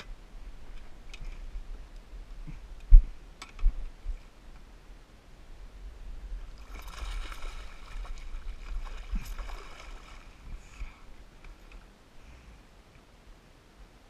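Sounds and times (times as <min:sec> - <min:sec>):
fish thrashing and splashing: 0:06.6 - 0:10.4.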